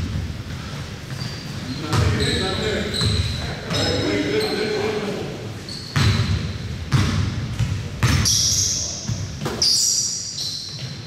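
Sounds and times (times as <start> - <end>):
sneaker squeaks on court: 0.6 - 4.7, 5.6 - 11.0
basketball bouncing on wooden floor: 6.0 - 8.4.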